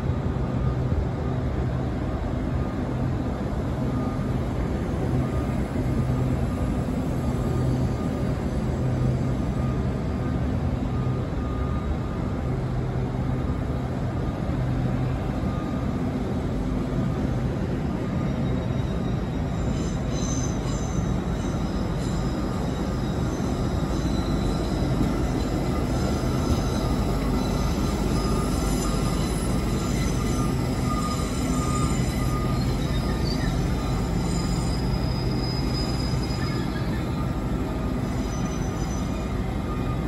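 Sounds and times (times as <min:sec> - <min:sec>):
train running: 0:00.0 - 0:40.0
high-pitched wheel squeal: 0:18.2 - 0:40.0.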